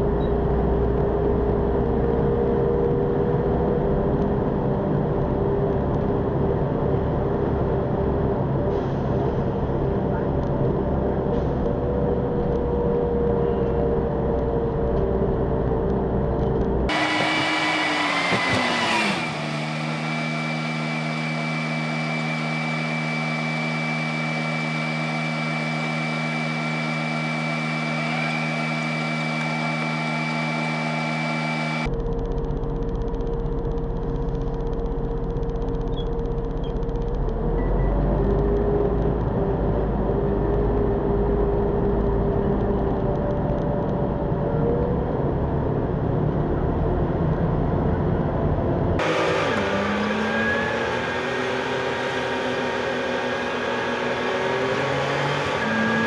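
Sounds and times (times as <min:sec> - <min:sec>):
bus engine running: 0:00.0 - 0:56.0.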